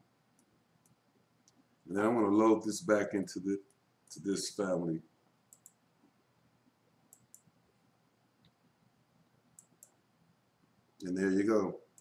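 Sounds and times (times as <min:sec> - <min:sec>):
faint computer mouse clicks: 0:00.4 - 0:01.6, 0:05.5 - 0:05.8, 0:07.1 - 0:07.5, 0:09.6 - 0:10.0.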